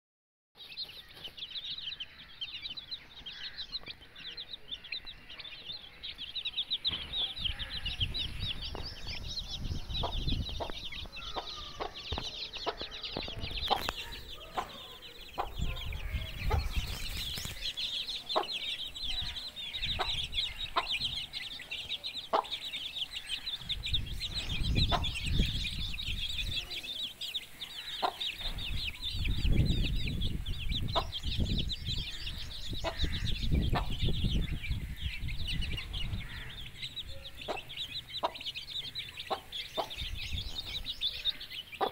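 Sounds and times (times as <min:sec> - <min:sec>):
chicks peeping: 0:00.6 - 0:41.9
hen clucking: 0:09.9 - 0:29.7, 0:30.7 - 0:41.9.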